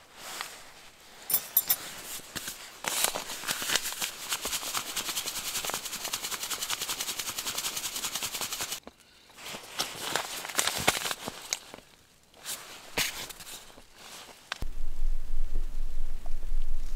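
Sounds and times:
hands rubbing together: 3.6s - 8.8s.

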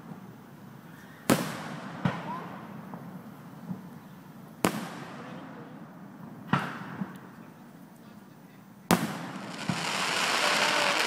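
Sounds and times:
firework shells bursting: 9.0s - 11.0s.

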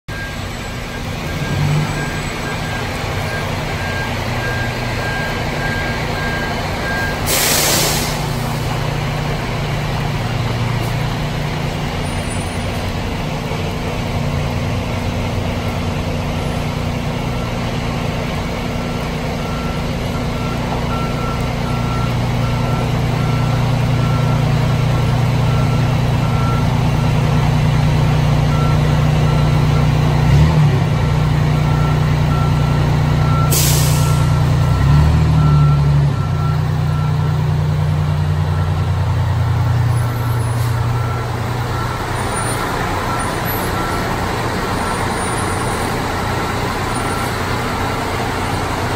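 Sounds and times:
diesel engine running: 0.1s - 48.9s
air brakes hissing: 7.1s - 8.7s, 33.4s - 34.5s, 40.1s - 41.0s.

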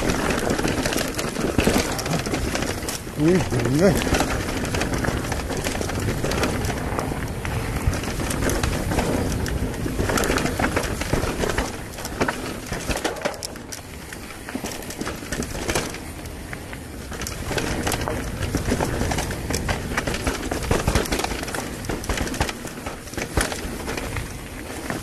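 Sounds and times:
bike rattling and knocking: 0.0s - 25.0s
tyres rolling over stones: 0.0s - 25.0s.

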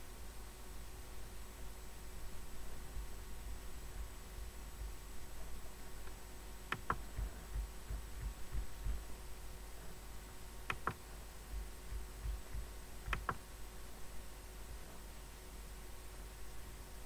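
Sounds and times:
low electrical hum: 0.0s - 17.0s
computer mouse clicks: 6.7s - 9.0s, 10.7s - 11.0s, 11.9s - 13.4s.

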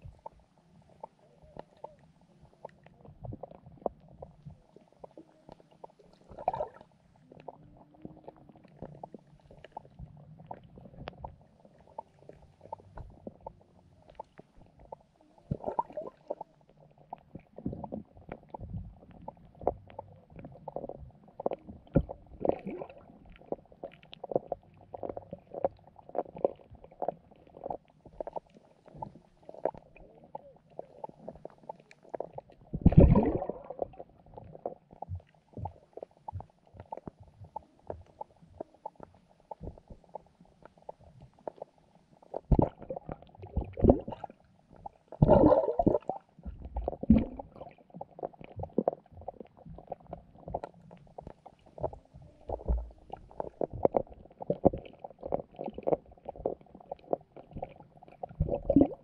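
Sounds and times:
muffled underwater clicks: 0.0s - 59.0s
underwater thumps: 32.7s - 33.8s, 45.2s - 47.6s.

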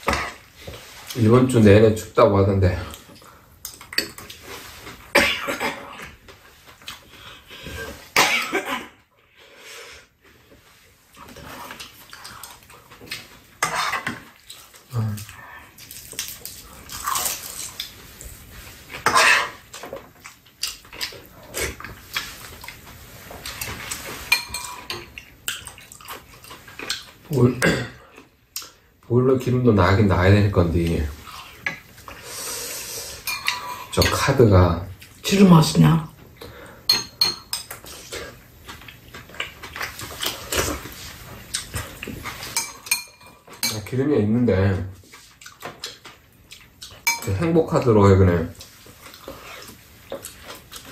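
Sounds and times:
close-up chewing and eating: 10.2s - 27.4s, 37.6s - 42.6s, 45.0s - 47.1s, 48.5s - 50.9s
cutlery clinking against bowls: 19.0s - 20.0s, 23.4s - 25.8s, 33.2s - 34.4s, 36.9s - 37.9s, 41.7s - 43.9s, 46.9s - 47.5s.

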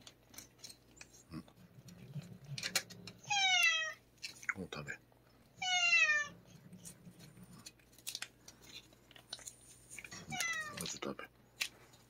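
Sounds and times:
faint clicks and rustles: 0.0s - 3.2s, 6.5s - 12.0s
cat meowing: 3.2s - 4.0s, 5.6s - 6.4s, 10.1s - 10.9s.

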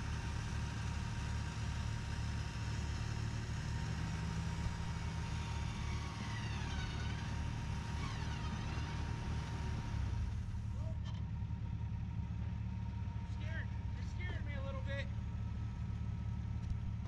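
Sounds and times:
truck engines idling low: 0.0s - 17.0s
faint swooping squeals: 5.6s - 9.3s.

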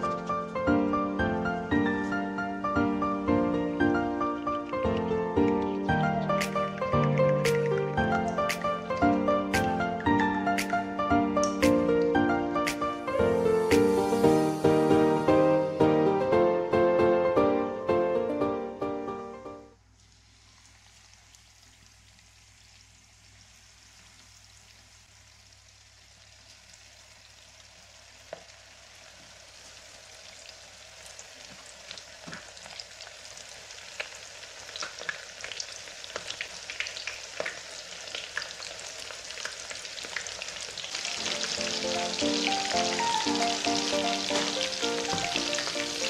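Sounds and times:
oil crackling and popping: 4.2s - 10.8s, 19.9s - 46.0s
food frying in hot oil: 19.9s - 46.0s.

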